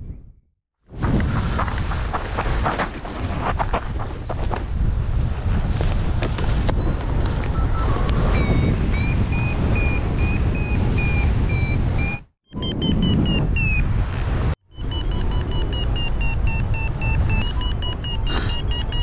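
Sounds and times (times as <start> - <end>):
wind noise on microphone: 0.0 - 19.0
variometer beeping: 7.6 - 13.9, 14.7 - 19.0.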